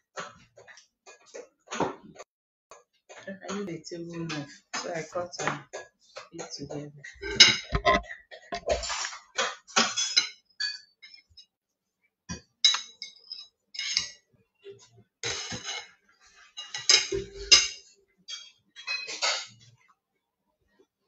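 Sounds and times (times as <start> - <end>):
knife scraping on ceramic plates: 5.8 - 11.4, 12.7 - 14.2, 15.2 - 19.6.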